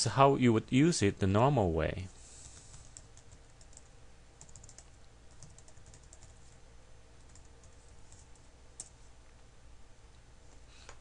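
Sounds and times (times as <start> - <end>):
low steady hum: 0.0 - 11.0
keyboard keys tapping: 2.9 - 6.6.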